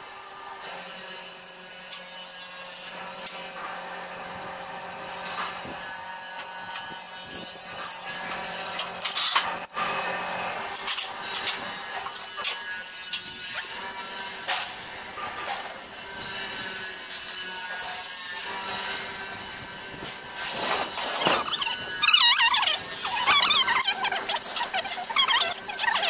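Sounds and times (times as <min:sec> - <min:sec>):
metal parts clicking and scraping: 0:08.2 - 0:09.6, 0:20.0 - 0:26.0.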